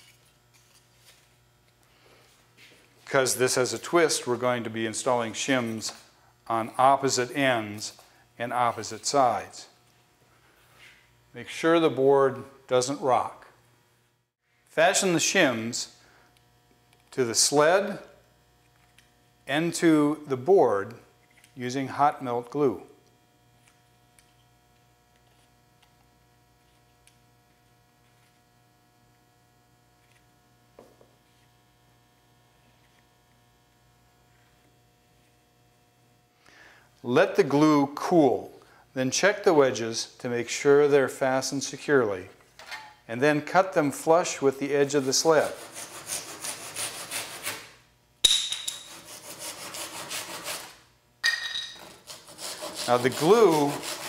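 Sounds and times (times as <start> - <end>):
low electrical hum: 0.0 - 54.0
handsaw cutting wood: 44.9 - 47.8, 48.9 - 50.8, 51.8 - 54.0.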